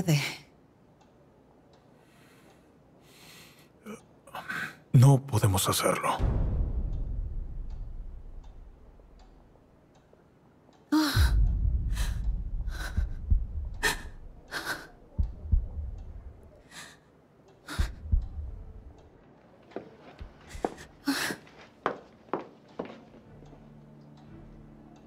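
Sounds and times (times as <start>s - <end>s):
low rumble: 6.2s - 9.6s, 11.2s - 16.6s, 17.8s - 19.1s.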